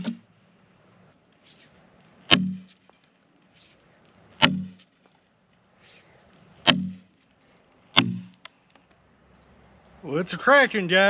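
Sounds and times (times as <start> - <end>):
sledgehammer striking steel wedges: 0.0 - 0.2, 2.3 - 3.1, 4.4 - 5.0, 6.6 - 7.3, 7.9 - 8.4.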